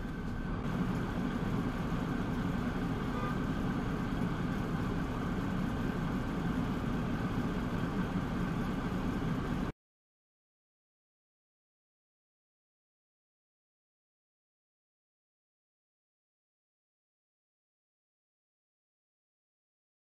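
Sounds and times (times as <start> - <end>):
car engine idling: 0.0 - 9.7.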